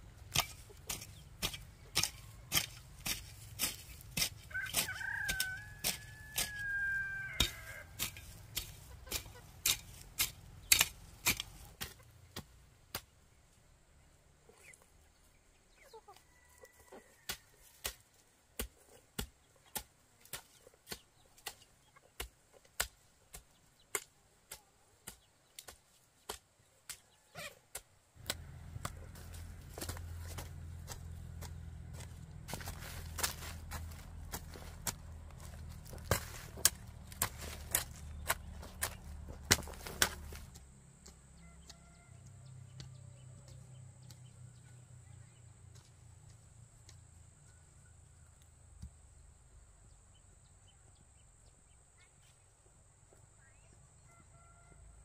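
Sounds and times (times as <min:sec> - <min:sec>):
hoe chopping into dry soil: 0:00.2 - 0:13.1, 0:17.2 - 0:41.8
rooster crowing: 0:04.5 - 0:08.0, 0:54.0 - 0:55.0
faint chicken calling: 0:04.5 - 0:08.1, 0:27.0 - 0:27.7, 0:41.4 - 0:43.6, 0:53.4 - 0:55.0.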